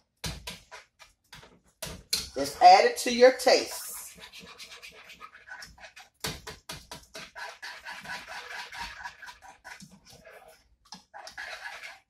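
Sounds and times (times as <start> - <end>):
whisk scraping a saucepan: 2.4 - 12.0.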